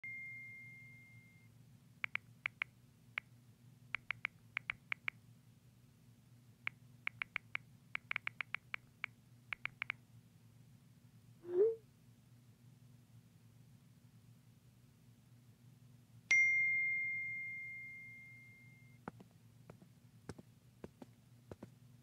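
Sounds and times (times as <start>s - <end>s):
high steady tone: 0.0s - 1.5s, 16.3s - 19.0s
faint steady hum: 0.0s - 22.0s.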